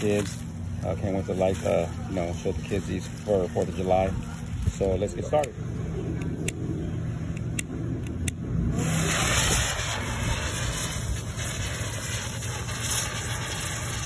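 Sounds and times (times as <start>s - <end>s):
firework hissing: 0.0s - 5.4s, 8.6s - 14.0s
low rumble: 0.0s - 14.0s
torch lighter clicking: 5.3s - 5.6s, 7.3s - 8.4s.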